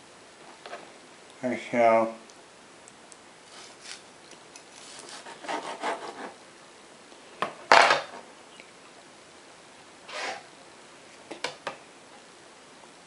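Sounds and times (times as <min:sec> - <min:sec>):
knife scraping through meat: 0:04.8 - 0:06.4.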